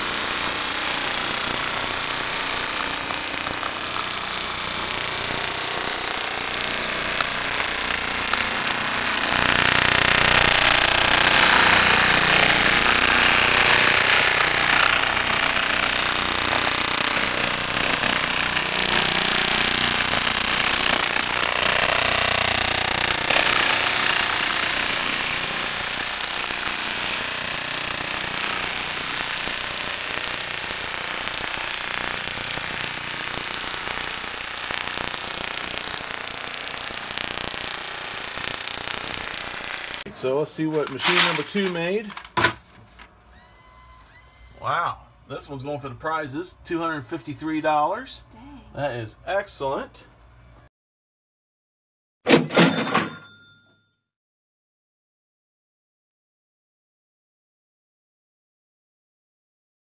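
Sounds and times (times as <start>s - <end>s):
coins pouring into plastic bucket: 40.8s - 42.4s.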